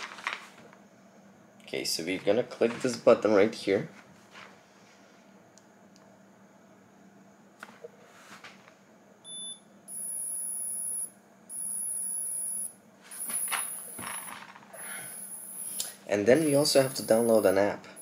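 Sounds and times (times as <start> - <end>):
electronic beeps: 9.3 - 15.8, 16.5 - 17.5.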